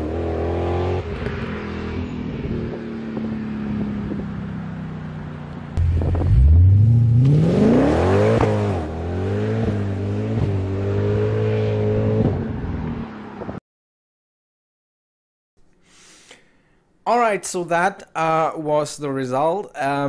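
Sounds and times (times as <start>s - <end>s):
car engine accelerating: 0.0s - 13.6s.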